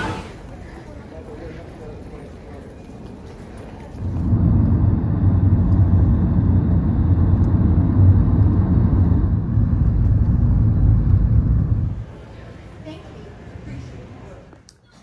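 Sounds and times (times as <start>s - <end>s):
road and wind noise inside car: 3.9s - 12.0s.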